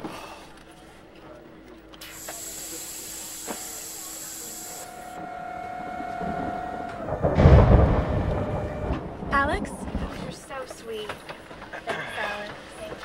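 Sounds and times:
air vent hissing: 0:02.0 - 0:07.2
steady whining tone: 0:04.7 - 0:11.3
low cabin hum: 0:05.1 - 0:11.7.

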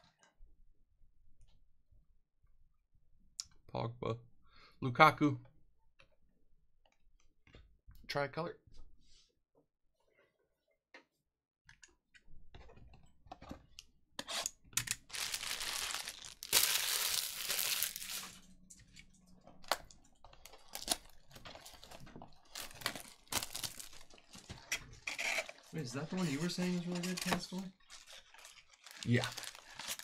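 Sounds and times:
plastic shrink wrap tearing: 0:14.9 - 0:18.4, 0:20.4 - 0:30.0.

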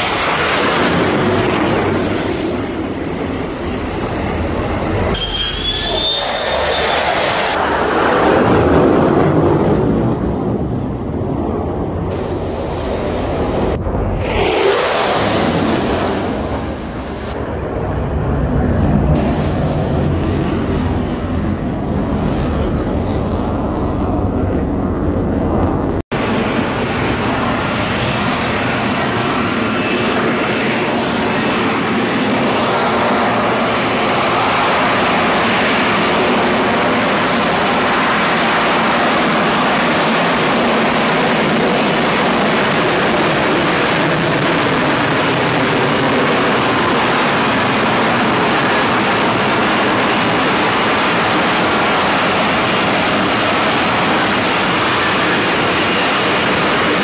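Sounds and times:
jet roaring: 0:00.0 - 0:57.0
deep rumble: 0:00.2 - 0:29.4.

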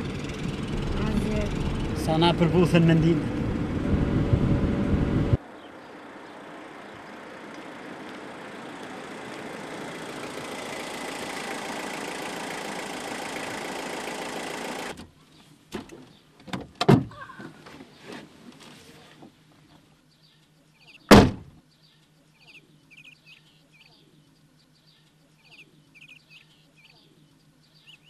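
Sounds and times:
car engine and tyre noise: 0:00.0 - 0:19.9
loud thump: 0:21.1 - 0:21.6.

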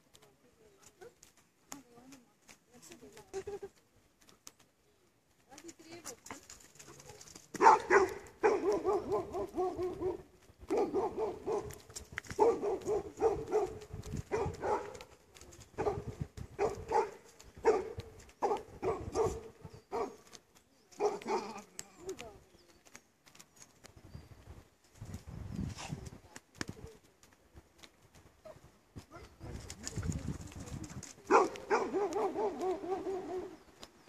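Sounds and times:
dog barking: 0:07.6 - 0:11.8, 0:12.4 - 0:15.0, 0:15.8 - 0:20.2, 0:21.0 - 0:21.6, 0:31.3 - 0:33.6.

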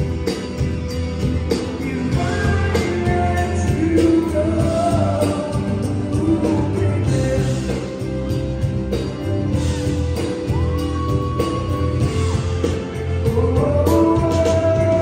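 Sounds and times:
live pop band playing: 0:00.0 - 0:15.0
man singing into microphone: 0:01.8 - 0:08.2, 0:13.2 - 0:15.0.

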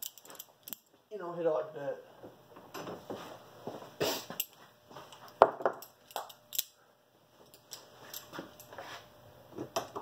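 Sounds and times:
hand tools clicking on metal: 0:00.0 - 0:00.9.

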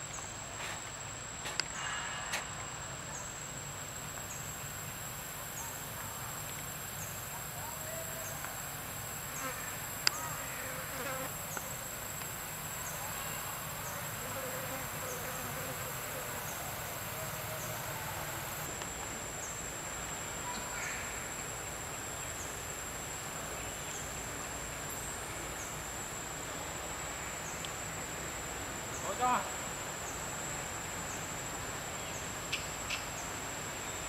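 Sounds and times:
insect chirps: 0:00.0 - 0:34.0
insect drone: 0:00.0 - 0:34.0.

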